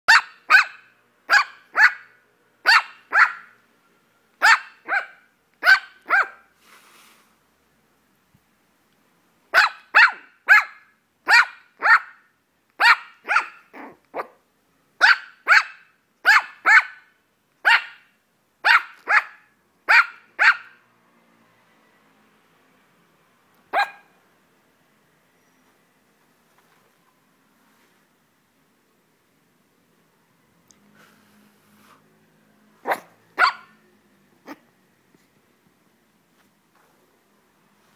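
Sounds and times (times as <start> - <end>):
puppy barking in high yaps: 0.1 - 3.6, 4.4 - 6.5, 9.5 - 14.4, 15.0 - 20.8, 23.7 - 24.2, 32.8 - 33.8.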